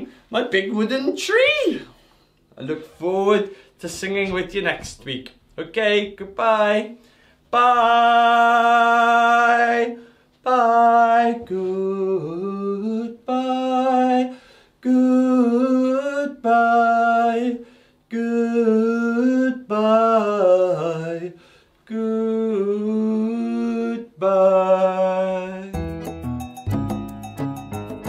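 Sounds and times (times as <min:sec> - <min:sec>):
man singing unaccompanied: 0:02.6 - 0:26.0
plucked string music with ticking: 0:25.8 - 0:28.0.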